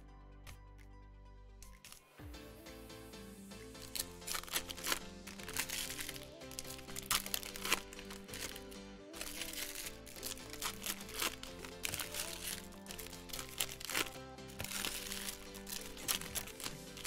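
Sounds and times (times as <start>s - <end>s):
background music: 0.0s - 17.0s
plastic wrappers crinkling: 1.7s - 2.1s, 3.8s - 17.0s.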